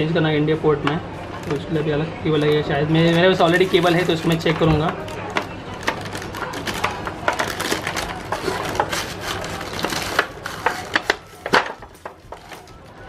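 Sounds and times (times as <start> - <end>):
plastic wrapping crinkling: 2.4 - 13.0.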